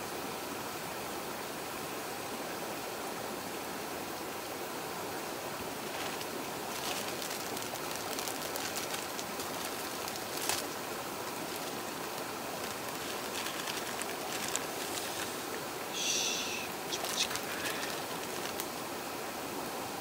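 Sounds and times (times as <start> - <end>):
river rushing: 0.0 - 20.0
campfire crackling and popping: 5.8 - 15.6, 16.6 - 18.8.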